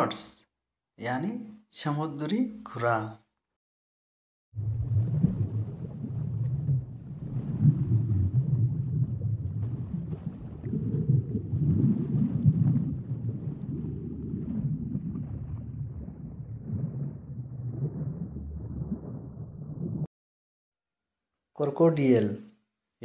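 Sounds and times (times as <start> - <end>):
low underwater rumbling: 4.6 - 20.1
faint crackles: 4.7 - 20.1.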